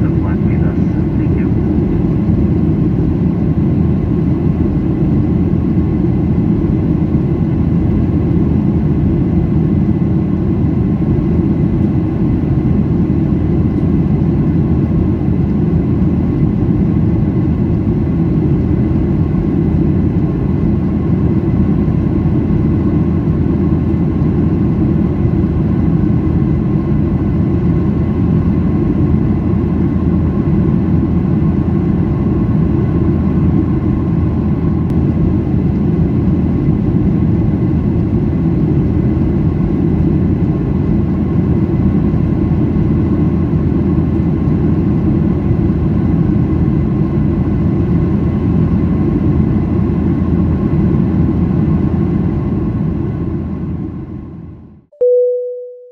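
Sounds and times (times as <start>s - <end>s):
airplane cabin engine rush: 0.0s - 55.3s
faint high tones: 55.0s - 55.9s.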